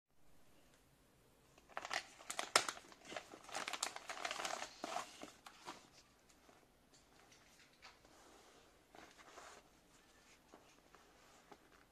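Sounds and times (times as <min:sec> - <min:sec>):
plastic bag crinkling: 0:01.7 - 0:06.0.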